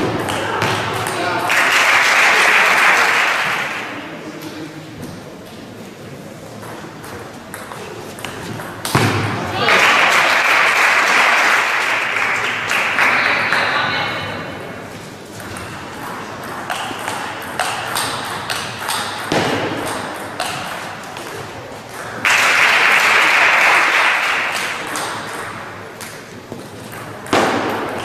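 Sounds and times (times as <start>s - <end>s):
applause: 1.4s - 4.0s, 9.6s - 13.8s, 22.2s - 25.1s.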